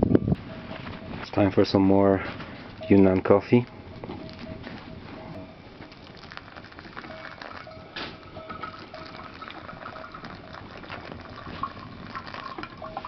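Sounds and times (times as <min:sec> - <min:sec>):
wood fire crackling and hissing: 0:01.3 - 0:13.0
hot water pouring into coffee filter: 0:05.8 - 0:13.0.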